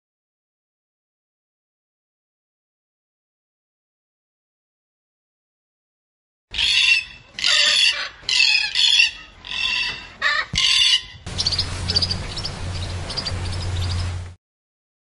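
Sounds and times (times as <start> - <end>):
cockatoo harsh screeches: 6.5 - 12.0
low hum: 11.2 - 14.4.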